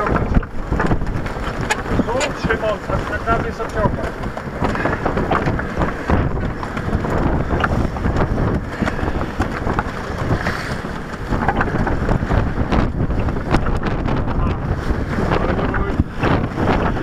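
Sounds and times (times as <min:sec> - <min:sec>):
rigging knocks and clicks: 0:00.0 - 0:14.6
wind buffeting microphone: 0:00.0 - 0:17.0.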